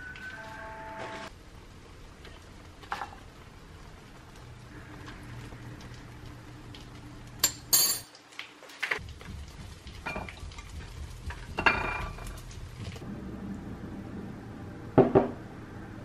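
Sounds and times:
ceramic dishware clinking: 7.4s - 8.1s, 11.6s - 12.2s
low steady hum: 9.0s - 16.0s.

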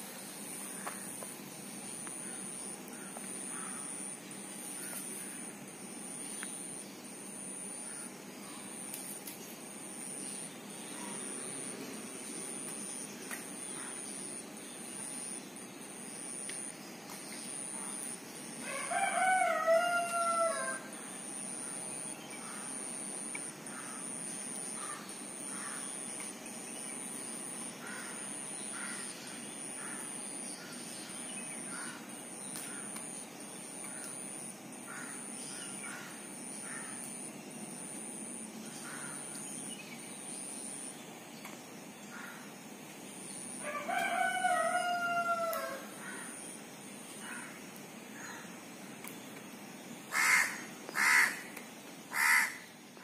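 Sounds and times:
rooster crowing: 18.6s - 20.9s, 43.6s - 45.9s.

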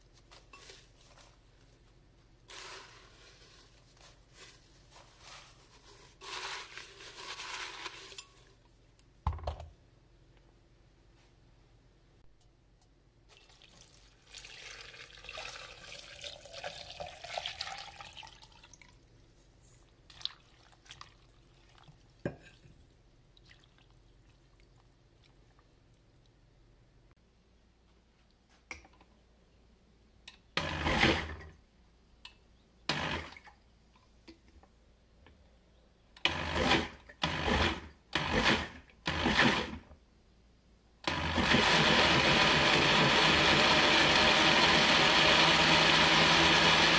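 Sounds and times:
water pouring into glass jar: 13.4s - 18.9s
blender running: 41.1s - 46.9s.

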